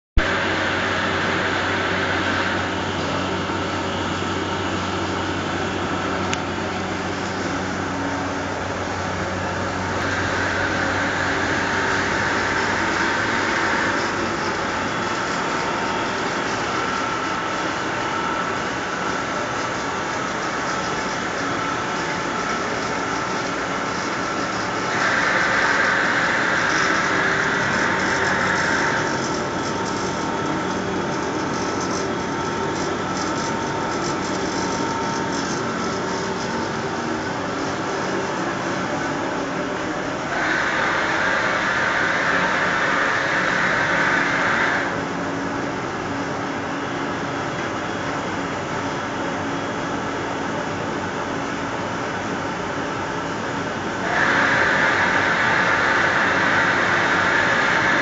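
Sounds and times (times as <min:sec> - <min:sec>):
rushing air from blower: 0:00.2 - 0:45.3, 0:53.5 - 0:58.0
machine hum: 0:00.2 - 0:58.0.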